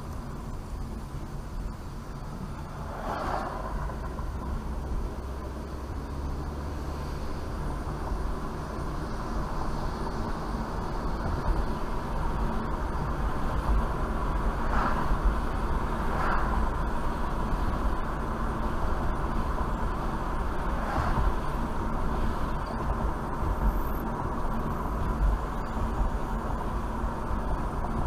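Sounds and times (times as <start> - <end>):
car engine and tyres rumbling: 0.0 - 28.0
passing car swish: 2.6 - 4.3, 14.6 - 15.3, 16.0 - 16.7, 20.7 - 21.4.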